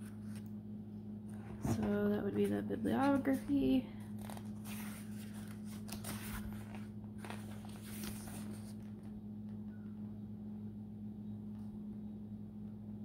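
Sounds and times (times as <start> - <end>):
book pages rustling: 0.0 - 0.6, 1.3 - 9.6
steady low hum: 0.0 - 13.0.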